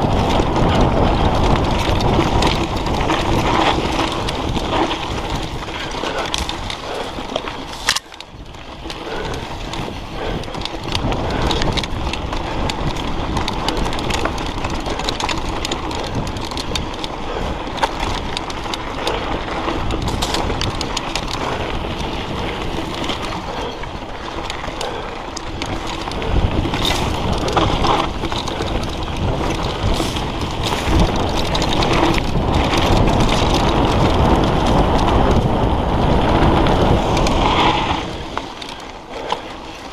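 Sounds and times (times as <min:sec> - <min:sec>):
bike rattling over bumps: 0:00.0 - 0:39.9
bike tyres crunching over dirt: 0:00.0 - 0:39.9
wind buffeting microphone: 0:00.0 - 0:39.9.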